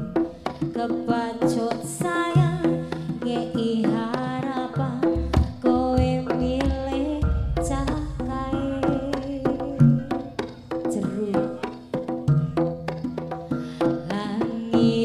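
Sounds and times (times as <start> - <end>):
hand drum strokes: 0.0 - 15.0
woman singing through microphone: 0.8 - 10.2, 10.9 - 11.8, 14.0 - 15.0
gamelan ensemble: 6.3 - 14.0
gongs: 7.2 - 11.7.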